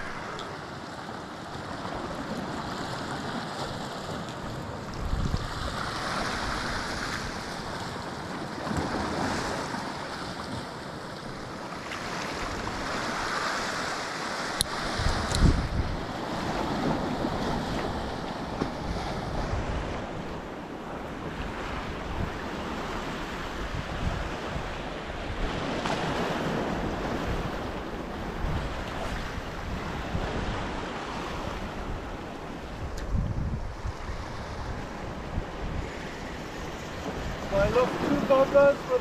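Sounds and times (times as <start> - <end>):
wind buffeting microphone: 0.0 - 9.7, 14.6 - 39.0
waves breaking on rocks: 0.0 - 39.0.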